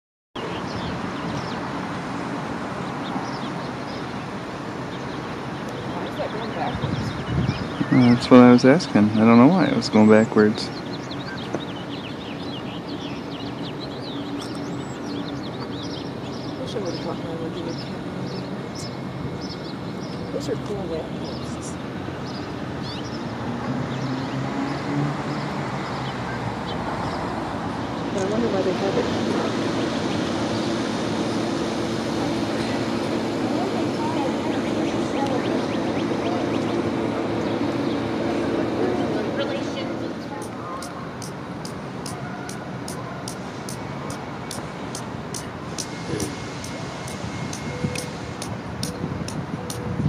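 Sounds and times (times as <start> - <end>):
city traffic hum: 0.4 - 50.0
small birds chirping: 0.4 - 50.0
bird chirps: 4.9 - 8.3, 10.6 - 17.1, 40.3 - 49.9.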